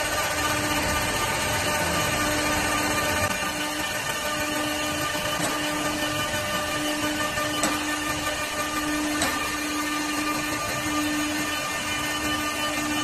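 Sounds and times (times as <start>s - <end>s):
wood lathe motor humming: 0.0s - 13.0s.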